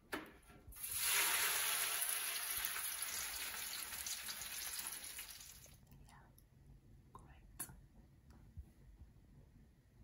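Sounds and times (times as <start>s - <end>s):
fish sizzling in oil: 0.8s - 5.7s.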